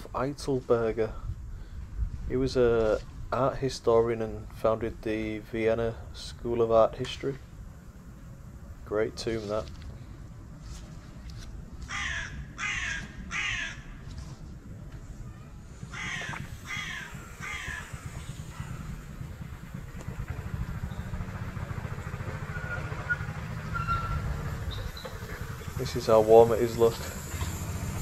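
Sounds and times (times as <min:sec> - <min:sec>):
steady low rumble: 0:00.0 - 0:28.0
bird calling: 0:15.8 - 0:28.0.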